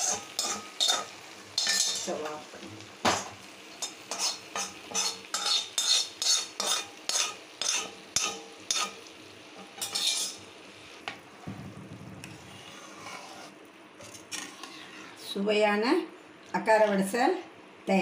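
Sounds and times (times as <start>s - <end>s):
metal spoon stirring a pot: 0.0s - 2.2s, 3.8s - 9.0s, 9.6s - 10.4s, 12.2s - 15.3s
food sizzling: 0.0s - 18.0s.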